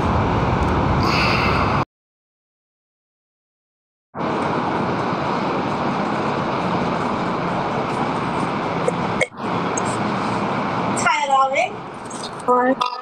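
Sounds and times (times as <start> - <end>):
steady rushing static noise: 0.0 - 1.8, 4.2 - 12.7.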